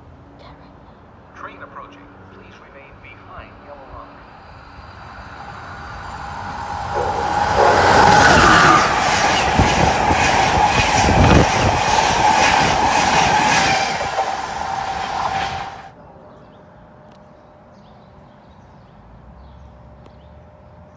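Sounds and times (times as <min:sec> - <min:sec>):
passenger train passing: 0:01.0 - 0:16.0
steady train whine: 0:01.1 - 0:16.0
wheels clattering over track: 0:05.4 - 0:15.9.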